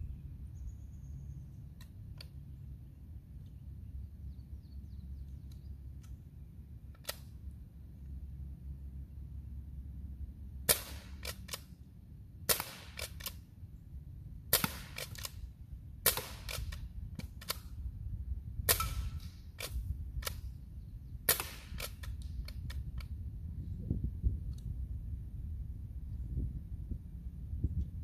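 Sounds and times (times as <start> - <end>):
pellet rifle cracks: 6.9 - 7.4, 10.7 - 11.7, 12.5 - 13.4, 14.5 - 15.4, 16.0 - 17.7, 18.7 - 20.5, 21.3 - 23.1.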